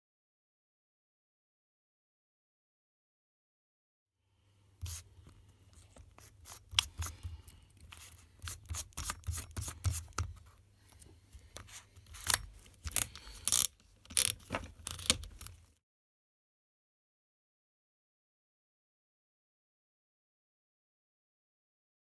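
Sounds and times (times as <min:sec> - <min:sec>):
drill chuck clicking and scraping: 0:11.4 - 0:15.6.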